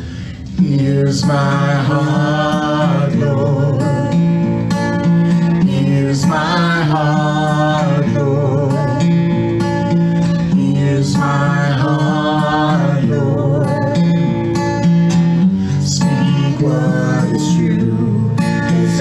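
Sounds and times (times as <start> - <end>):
acoustic guitar: 0.0 - 19.0
woman and man singing: 0.5 - 4.2, 5.6 - 9.2, 10.5 - 14.3, 15.5 - 19.0.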